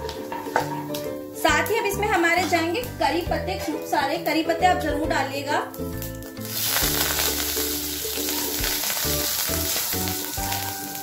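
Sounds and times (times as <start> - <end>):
background music: 0.0 - 11.0
leaves sizzling in hot oil: 5.1 - 11.0.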